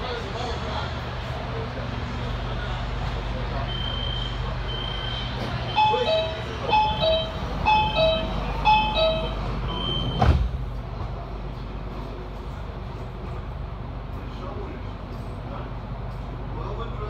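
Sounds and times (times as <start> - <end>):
high steady beeps: 3.7 - 10.2
doors shutting thud: 10.0 - 10.6.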